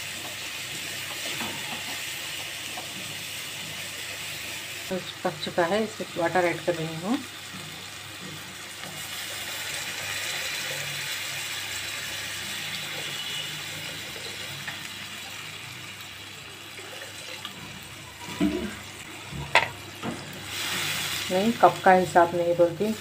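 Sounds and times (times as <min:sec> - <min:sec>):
water pouring into a wok: 0:09.0 - 0:18.4.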